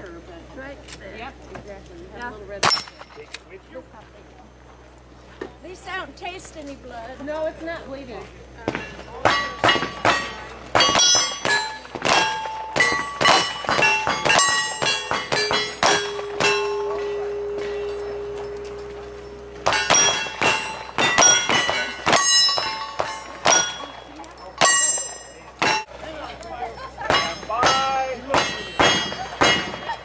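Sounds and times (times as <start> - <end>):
steel targets ringing when hit: 2.6 - 3.3, 9.2 - 25.9, 27.0 - 30.0.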